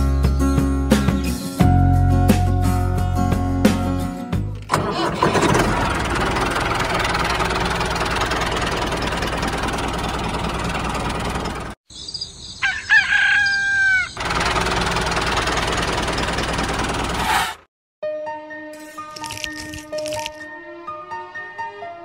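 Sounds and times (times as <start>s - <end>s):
rooster crowing: 12.6s - 14.2s
motor running: 14.2s - 17.2s.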